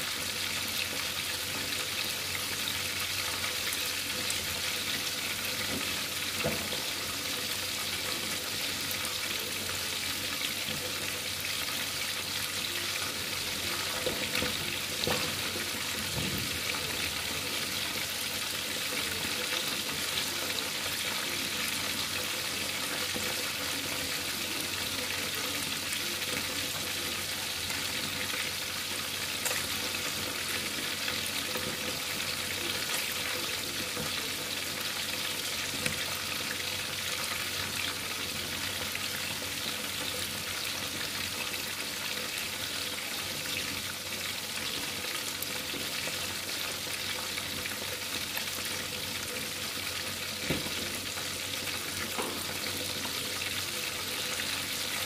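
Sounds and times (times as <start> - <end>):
fish sizzling in hot oil: 0.0 - 55.0.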